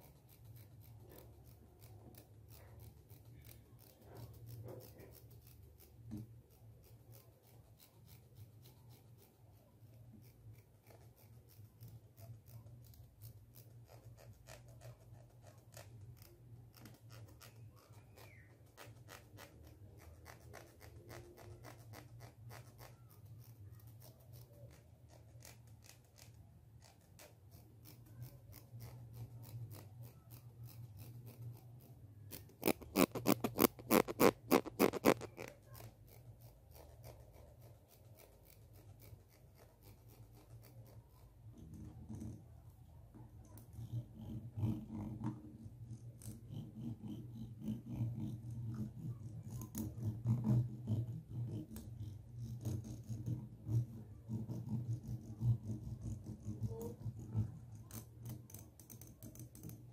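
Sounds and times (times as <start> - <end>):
plastic comb teeth clicking: 32.3 - 35.8.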